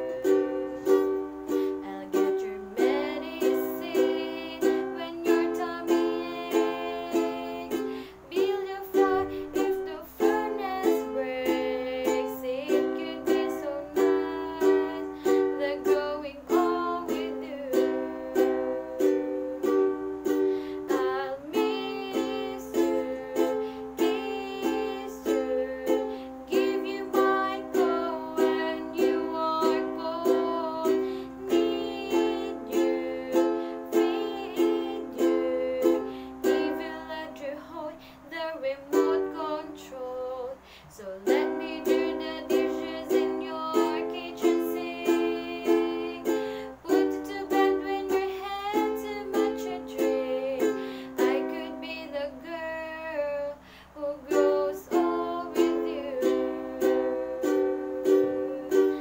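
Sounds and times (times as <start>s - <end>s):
ukulele strumming: 0.0s - 59.0s
woman singing: 0.0s - 59.0s.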